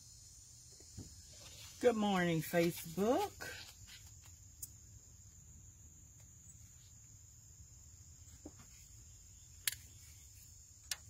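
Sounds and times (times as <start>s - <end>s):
high-pitched insect trill: 0.0s - 11.0s.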